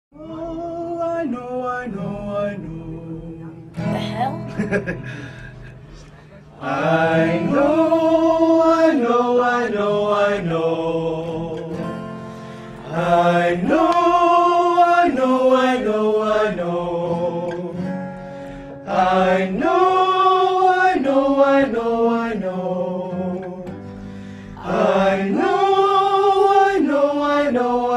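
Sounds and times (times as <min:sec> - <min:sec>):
person singing vocal warm-up: 0:00.1 - 0:04.3, 0:05.0 - 0:27.9
acoustic guitar: 0:00.1 - 0:27.9.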